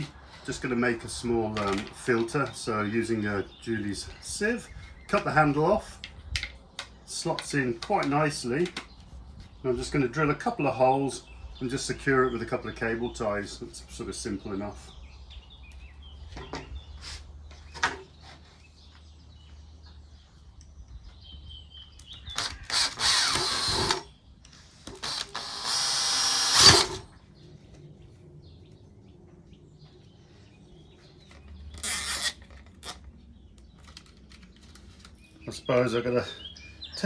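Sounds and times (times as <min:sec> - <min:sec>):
cordless drill boring plastic: 0:22.3 - 0:24.1, 0:24.8 - 0:27.0, 0:31.8 - 0:33.0
cable tie rasp: 0:31.8 - 0:33.0.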